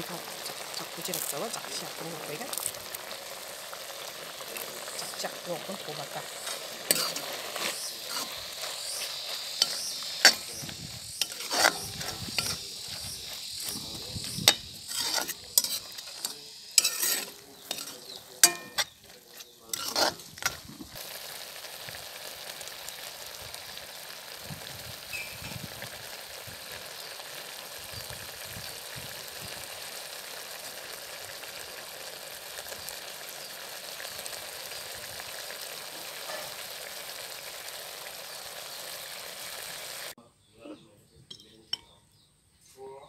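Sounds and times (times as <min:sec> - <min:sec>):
food sizzling: 0:00.0 - 0:40.2
metal ladle scraping wok: 0:00.2 - 0:21.0, 0:36.2 - 0:36.7.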